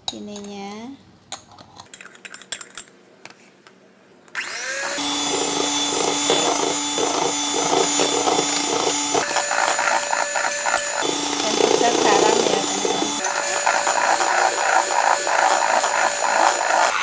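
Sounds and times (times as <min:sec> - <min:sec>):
electric hand mixer whirring: 0:04.4 - 0:17.0.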